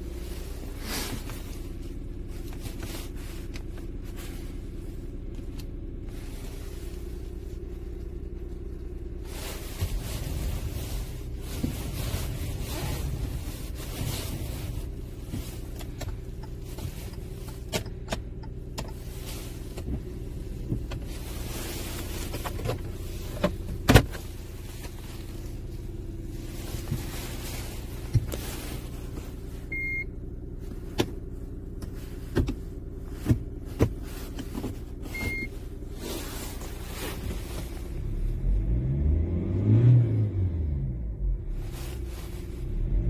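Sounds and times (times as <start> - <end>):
car engine idling: 0.0 - 43.0.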